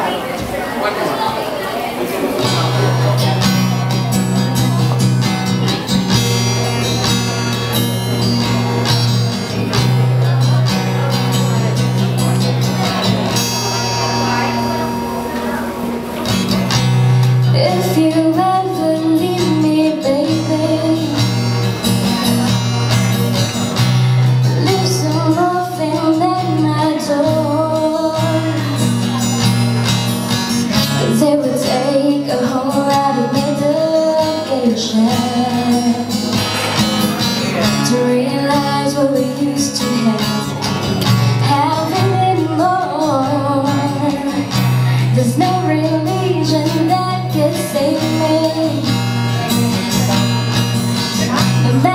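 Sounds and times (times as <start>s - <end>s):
acoustic guitar: 0.0s - 51.9s
woman singing: 17.5s - 21.3s, 24.6s - 28.8s, 30.9s - 36.3s, 37.6s - 40.5s, 41.2s - 49.0s, 51.4s - 51.9s.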